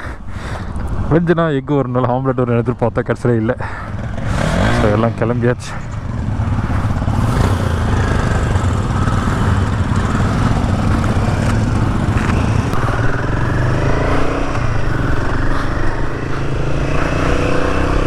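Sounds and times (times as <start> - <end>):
motorcycle engine rumble: 3.4 - 18.0
wind rushing over microphone: 5.9 - 18.0.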